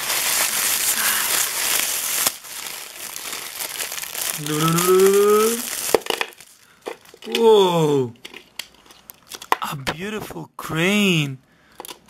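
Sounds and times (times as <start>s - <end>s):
plastic wrapping crinkling: 0.0s - 7.6s
man's wordless rising vocal sound: 4.4s - 5.7s.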